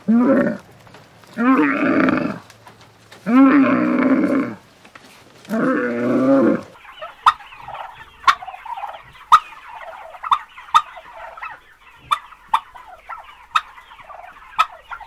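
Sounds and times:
camel bellowing: 0:00.0 - 0:00.7, 0:01.4 - 0:02.4, 0:03.2 - 0:04.6, 0:05.5 - 0:06.7
guineafowl chattering calls: 0:01.3 - 0:04.6, 0:05.5 - 0:15.0.

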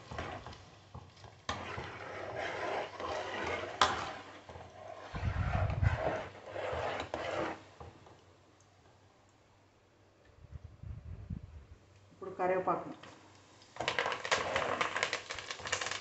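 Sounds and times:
oil sizzling in a pot: 0:00.0 - 0:08.0, 0:13.4 - 0:16.0.

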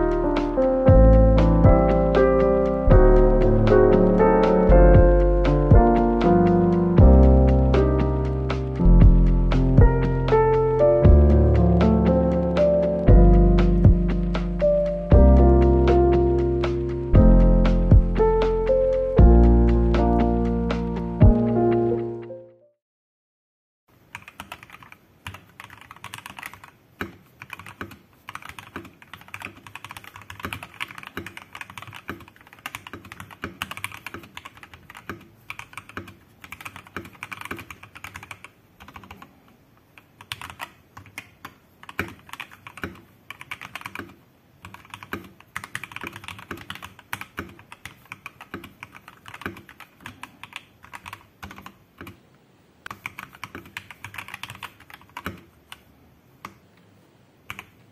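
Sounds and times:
mechanical keyboard typing: 0:24.1 - 0:39.4, 0:40.0 - 0:52.2, 0:52.9 - 0:56.6, 0:57.4 - 0:57.9.

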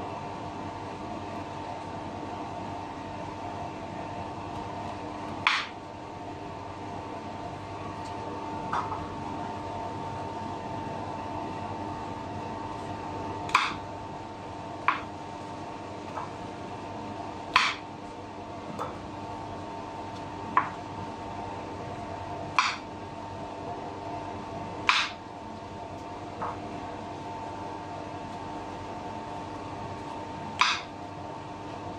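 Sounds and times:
steady background hum: 0:00.0 - 0:31.9
knife striking cutting board: 0:17.6 - 0:17.8, 0:30.6 - 0:30.9.

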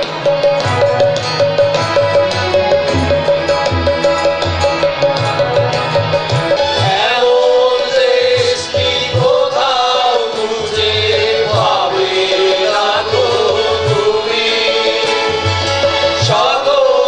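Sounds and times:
harmonium: 0:00.0 - 0:17.0
keyboard: 0:00.0 - 0:17.0
tabla: 0:00.0 - 0:17.0
group of voices singing: 0:06.6 - 0:17.0.

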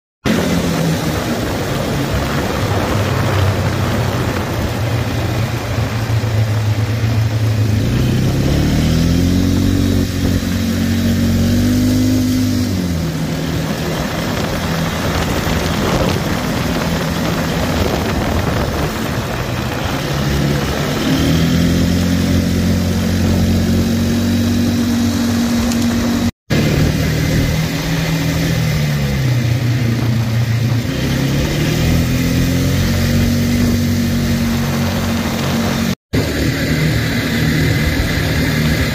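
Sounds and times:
atv engine revving: 0:00.2 - 0:38.9
steady rush of noise: 0:00.3 - 0:11.6, 0:12.7 - 0:28.4.

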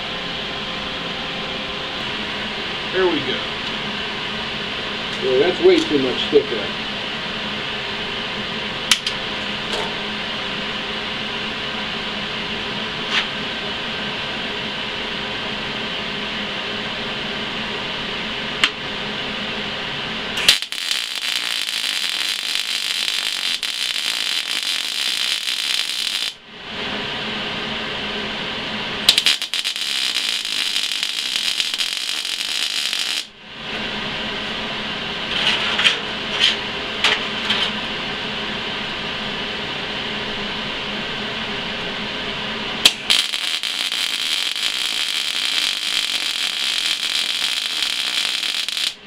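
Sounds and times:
fan-like hum: 0:00.0 - 0:49.0
welding arc crackling: 0:20.4 - 0:26.4, 0:29.0 - 0:33.4, 0:42.8 - 0:49.0.

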